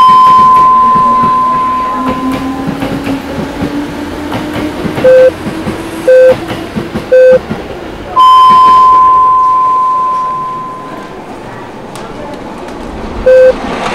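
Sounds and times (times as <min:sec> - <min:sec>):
time signal beeps: 0:00.0 - 0:02.5, 0:05.0 - 0:05.3, 0:06.1 - 0:06.4, 0:07.1 - 0:07.4, 0:08.2 - 0:11.2, 0:13.3 - 0:13.6
long high tone: 0:00.0 - 0:02.7, 0:08.2 - 0:11.8
train rumbling and whining: 0:00.0 - 0:13.9.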